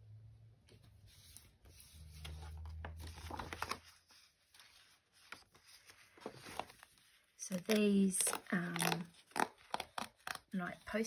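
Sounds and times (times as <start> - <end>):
paper rustling and sliding: 0.8 - 7.8.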